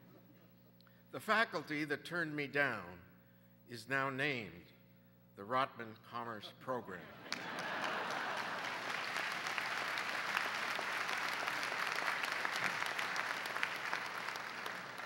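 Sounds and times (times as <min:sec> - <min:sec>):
audience applauding: 0:07.3 - 0:15.0.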